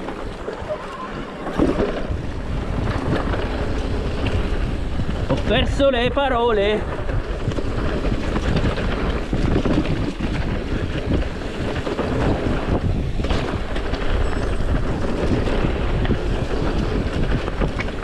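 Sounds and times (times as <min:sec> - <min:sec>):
bike tyres rumbling on dirt trail: 0:00.0 - 0:18.0
wind buffeting microphone: 0:00.0 - 0:18.0.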